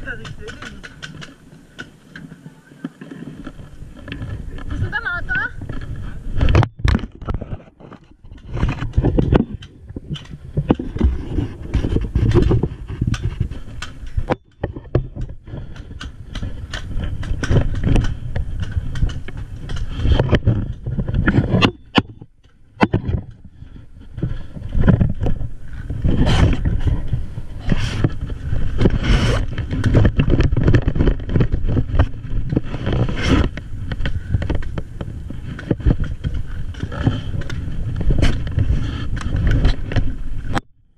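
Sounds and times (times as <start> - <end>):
sharp clicks and knocks: 5.6 - 23.5, 24.2 - 40.7
clothing rubbing against camera: 23.8 - 33.9.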